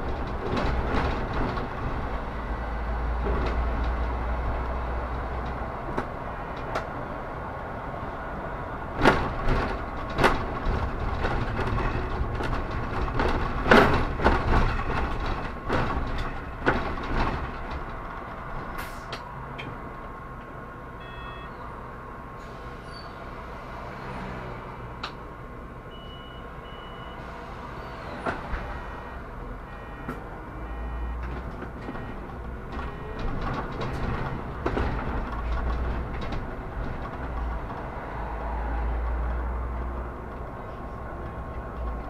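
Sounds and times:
bus body rattling: 0:00.0 - 0:20.9, 0:27.2 - 0:42.0
bus engine rumble: 0:00.0 - 0:42.0
short electronic beeps: 0:21.0 - 0:21.6, 0:25.9 - 0:27.2, 0:28.8 - 0:31.2.

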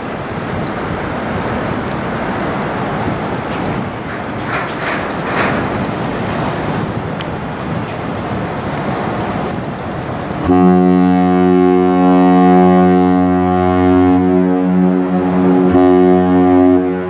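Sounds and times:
wind noise: 0:00.0 - 0:10.8
deep ship horn blast: 0:10.4 - 0:17.0.

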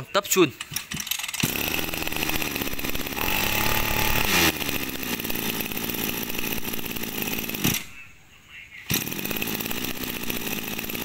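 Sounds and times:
two-stroke engine revving and idling: 0:00.7 - 0:08.1, 0:08.8 - 0:11.0.

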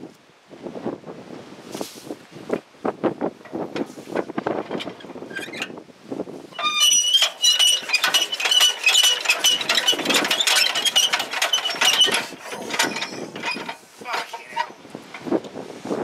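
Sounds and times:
diesel engine hand-cranked: 0:06.5 - 0:15.4.

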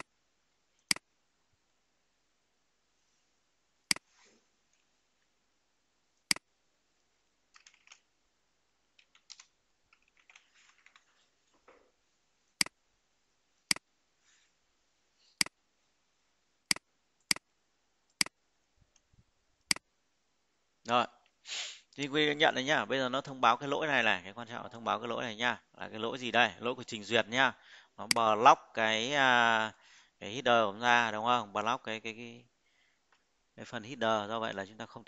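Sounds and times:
soft keyboard typing: 0:07.5 - 0:08.1, 0:08.9 - 0:11.8.

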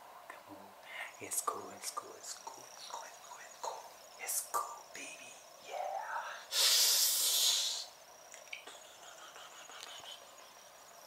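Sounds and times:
short breathy vocal sound: 0:06.0 - 0:07.9
man hissing breath: 0:06.2 - 0:08.0.

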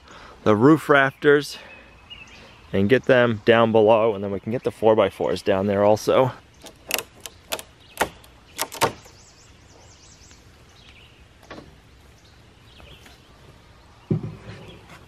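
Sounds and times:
birds chirping faintly: 0:00.0 - 0:15.0.

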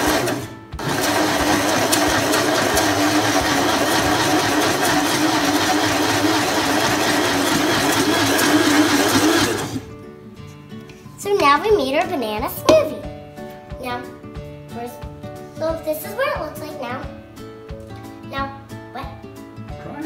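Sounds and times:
blender motor whirring: 0:00.0 - 0:09.9.

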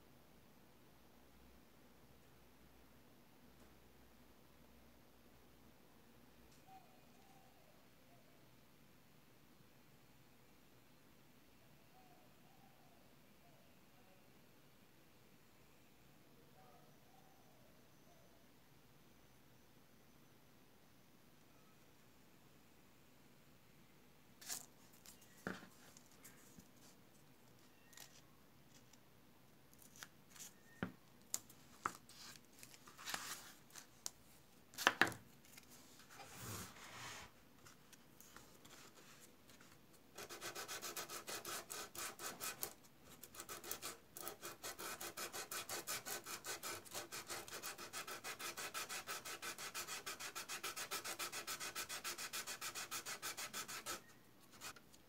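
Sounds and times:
sanding sponge on plastic: 0:40.2 - 0:42.7, 0:43.4 - 0:54.0.

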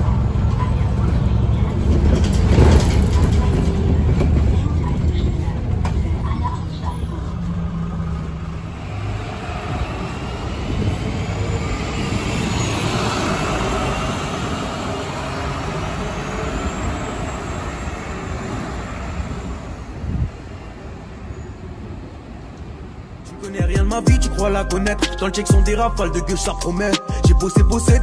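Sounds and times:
low hum inside bus: 0:00.0 - 0:12.8
diesel buses idling and pulling: 0:00.0 - 0:28.0.

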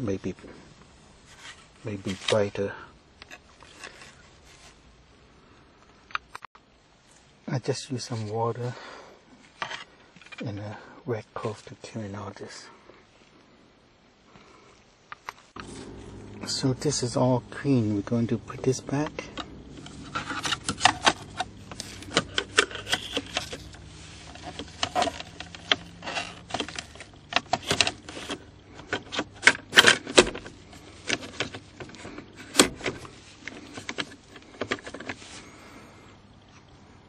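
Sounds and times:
plastic trim rattling and clicking: 0:19.1 - 0:35.2.

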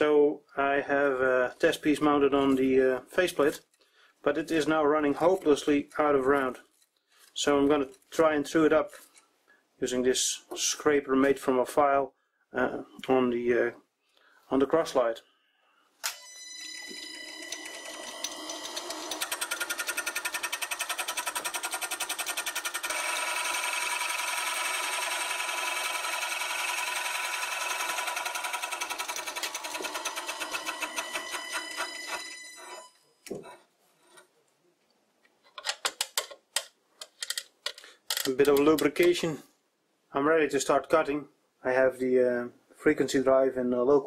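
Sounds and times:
lathe motor whine: 0:16.8 - 0:20.0.

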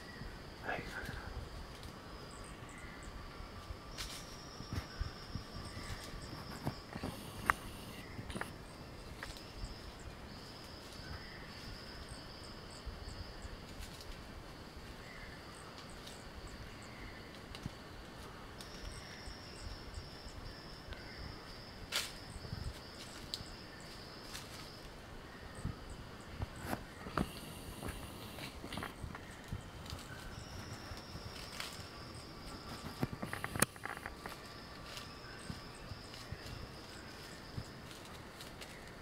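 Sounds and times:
insects chirring: 0:00.0 - 0:39.0.

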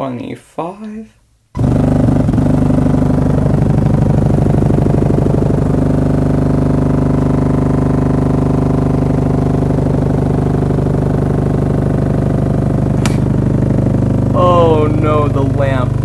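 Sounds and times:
subwoofer buzzing test tone: 0:01.5 - 0:16.0.

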